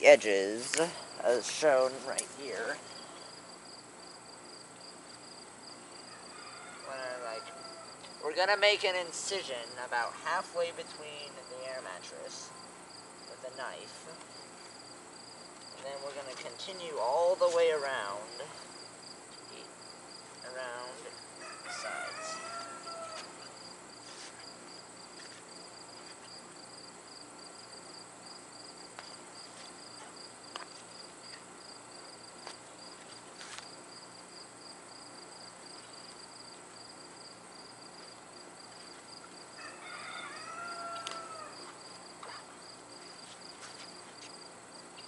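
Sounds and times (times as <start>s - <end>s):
insects chirping: 0.0s - 45.0s
rooster crowing: 6.0s - 8.0s, 21.4s - 23.5s, 39.5s - 41.8s.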